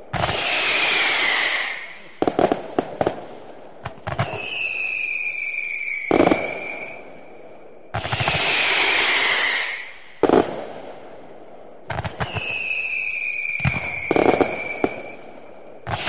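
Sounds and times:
fireworks bangs and crackling: 0.0s - 16.0s
firework whistle falling in pitch: 4.2s - 7.1s, 12.2s - 15.2s.

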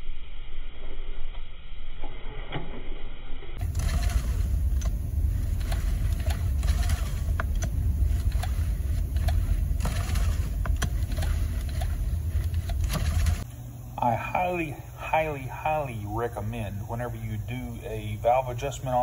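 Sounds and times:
engine running with ticking valves: 3.6s - 13.4s.

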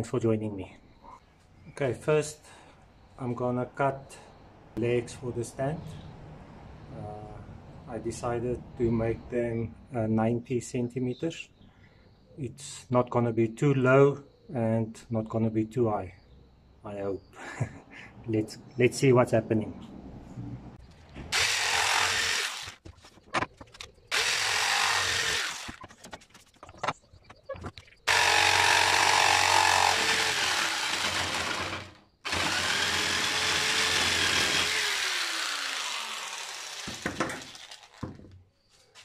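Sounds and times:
electric jigsaw cutting pipe: 21.3s - 22.8s, 24.1s - 25.8s, 28.1s - 38.1s.

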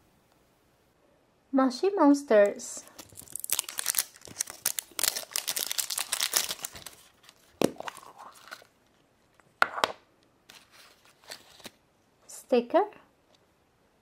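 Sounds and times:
wrapper crinkling and tearing: 2.8s - 8.8s, 10.5s - 11.8s.

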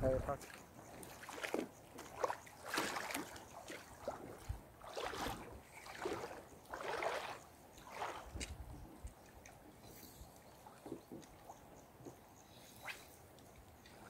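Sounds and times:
water splashing and sloshing: 0.0s - 14.0s.

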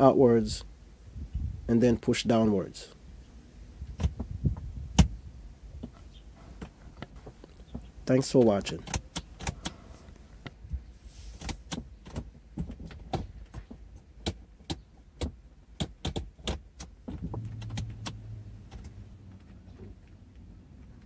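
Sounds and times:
gear selector lever clicks: 6.6s - 9.8s, 14.2s - 19.0s
low steady hum: 17.1s - 21.0s.

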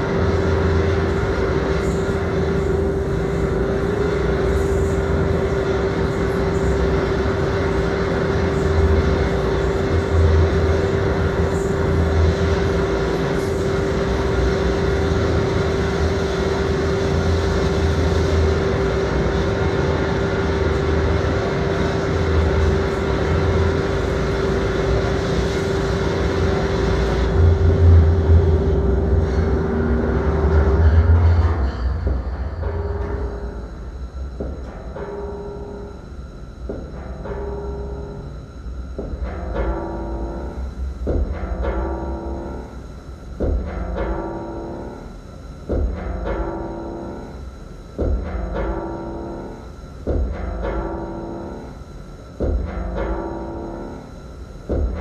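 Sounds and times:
steady mid-pitched tone: 0.0s - 55.0s
deep bass pulses: 26.0s - 34.7s, 38.8s - 44.2s.

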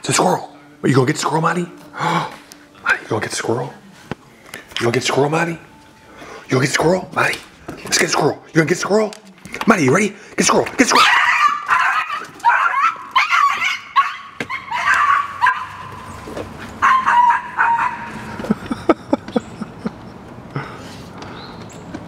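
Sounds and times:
puppy barking shrilly: 10.9s - 16.2s, 16.8s - 18.3s.

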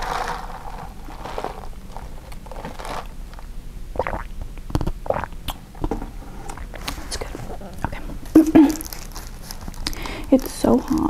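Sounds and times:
wrapper rustling and crinkling: 0.0s - 3.1s, 8.3s - 11.0s.

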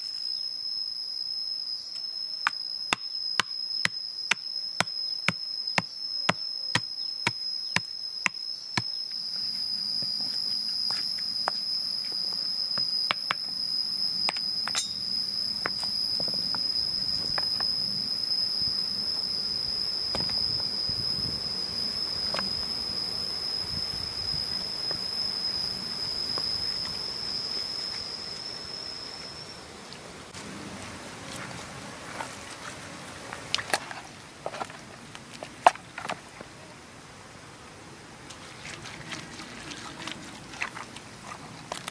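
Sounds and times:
high-pitched insect drone: 0.0s - 30.4s.

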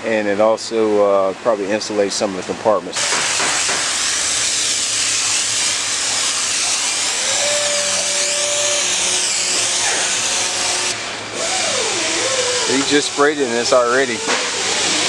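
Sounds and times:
foam spray gun hissing: 3.0s - 15.0s.

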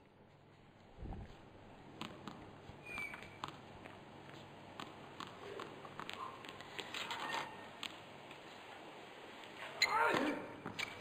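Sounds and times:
tennis ball bouncing on court: 1.9s - 6.9s
shoe squeaks: 2.7s - 3.6s, 5.6s - 7.7s, 9.7s - 11.0s.

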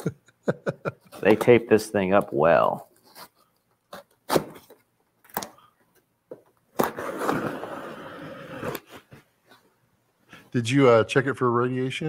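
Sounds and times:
knife scraping cardboard: 6.8s - 9.2s
blade rasping along taped seam: 6.9s - 9.0s.

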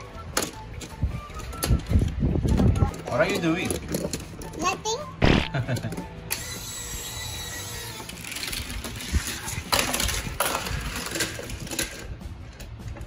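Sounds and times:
toy cars rattling down plastic ramps: 2.8s - 4.7s, 5.9s - 12.1s
loud toy clatter: 6.4s - 12.1s.

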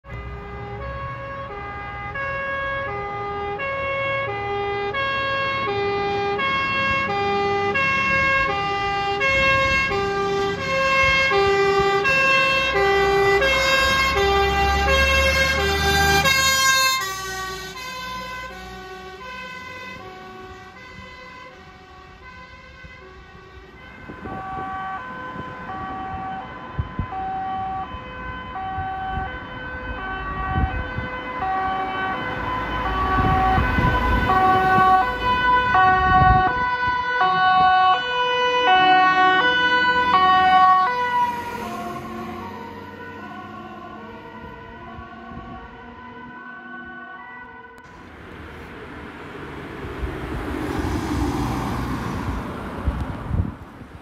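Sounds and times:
fire engine two-tone siren: 0.0s - 53.4s
faint emergency vehicle siren: 0.0s - 54.0s
truck engine rumbling: 47.6s - 54.0s.

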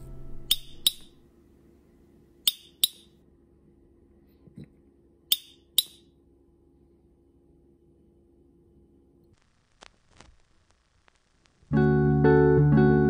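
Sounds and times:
glass toy clicking: 0.5s - 1.1s, 2.5s - 3.1s, 5.3s - 6.0s.

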